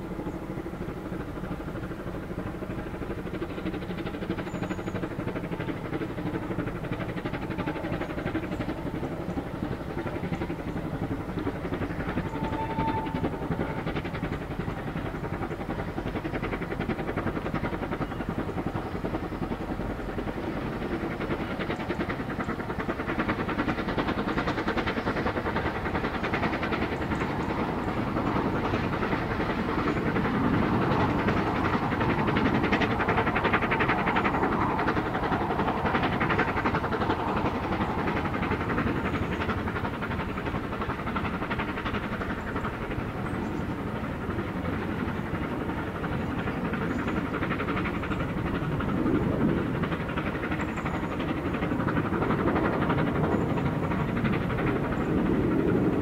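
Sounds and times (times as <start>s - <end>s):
steam locomotive exhaust beats: 0.0s - 56.0s
train coaches rolling: 4.5s - 15.4s.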